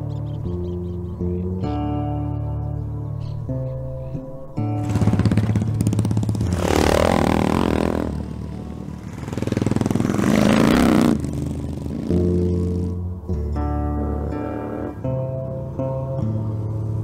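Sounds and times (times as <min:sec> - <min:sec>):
motorcycle engines revving: 0:04.8 - 0:13.0.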